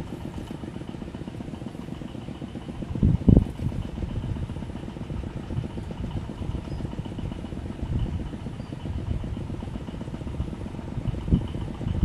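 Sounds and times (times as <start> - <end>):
wind buffeting microphone: 2.5 - 12.0.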